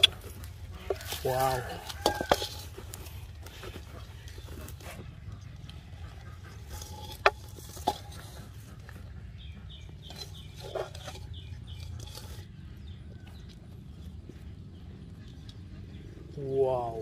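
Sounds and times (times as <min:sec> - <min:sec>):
fingers rustling through pith: 0:00.0 - 0:09.1.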